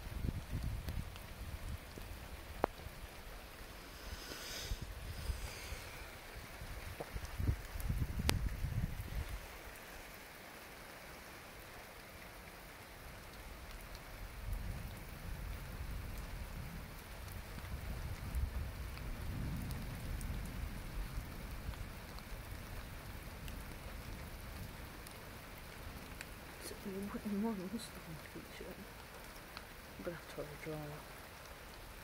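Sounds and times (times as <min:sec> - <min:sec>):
rain drop ticks: 0:00.0 - 0:03.8, 0:05.7 - 0:32.0
steady rain falling: 0:00.0 - 0:32.0
low thunder rumble: 0:14.4 - 0:21.7.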